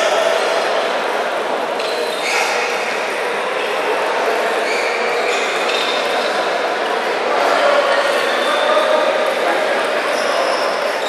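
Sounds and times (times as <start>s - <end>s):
crowd chatter in large hall: 0.0s - 11.0s.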